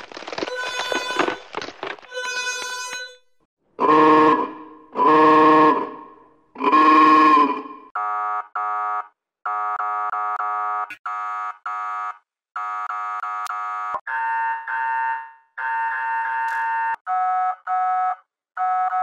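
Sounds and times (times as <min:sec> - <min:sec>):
police truck horn blasts: 0:03.8 - 0:07.7.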